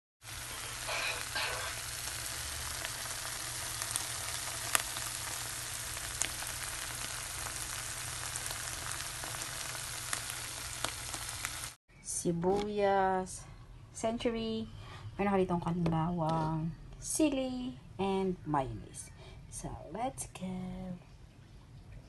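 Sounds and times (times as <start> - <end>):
food sizzling in a pan: 0.2 - 11.8
sharp pops of frying: 0.3 - 11.8.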